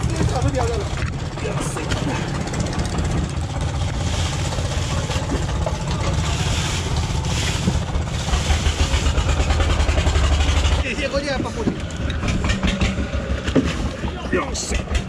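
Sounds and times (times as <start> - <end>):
boat engine rumbling: 0.0 - 15.0
plastic bags and ice rustling: 2.9 - 9.6.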